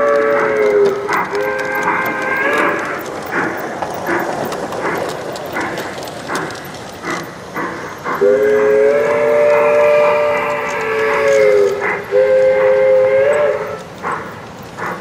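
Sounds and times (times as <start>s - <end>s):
multi-tone train whistle: 0.0s - 2.9s, 8.2s - 14.2s
model train chuffing: 0.0s - 15.0s.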